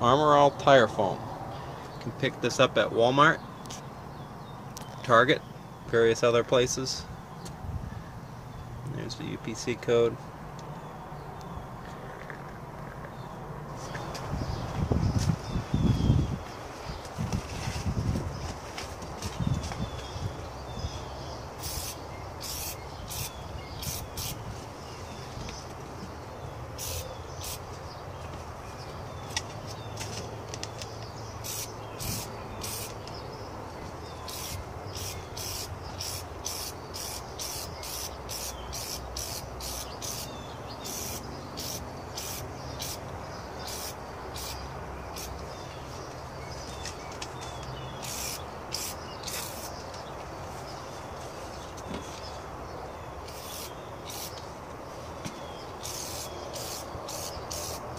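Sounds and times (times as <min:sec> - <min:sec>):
aerosol can spraying bursts: 0:21.6 - 0:24.4, 0:26.8 - 0:27.6, 0:31.4 - 0:33.0, 0:34.3 - 0:43.0, 0:43.6 - 0:44.6, 0:48.0 - 0:49.7, 0:53.3 - 0:54.4, 0:55.8 - 0:57.8.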